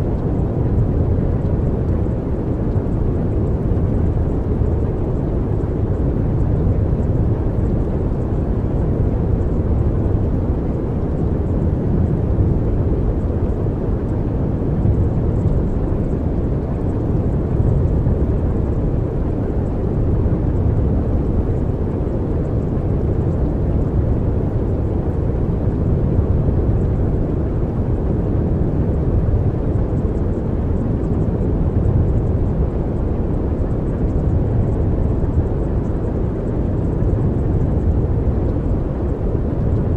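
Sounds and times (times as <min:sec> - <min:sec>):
steady low rumbling: 0:11.5 - 0:39.9.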